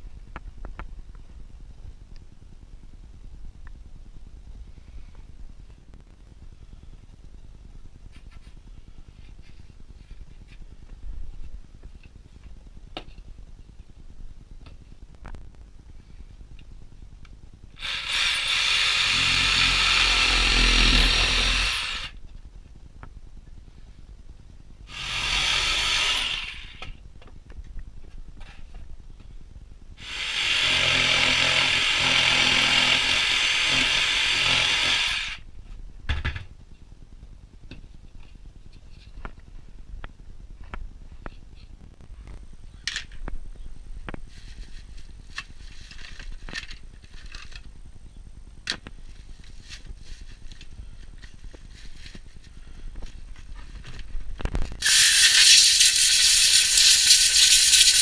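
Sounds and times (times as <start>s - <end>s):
jigsaw cutting board: 17.8s - 22.2s, 24.9s - 26.9s, 30.0s - 35.4s.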